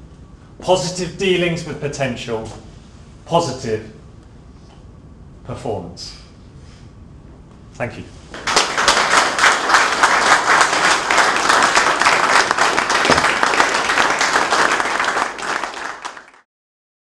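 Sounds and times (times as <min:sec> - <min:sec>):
audience applauding: 0:08.4 - 0:16.5.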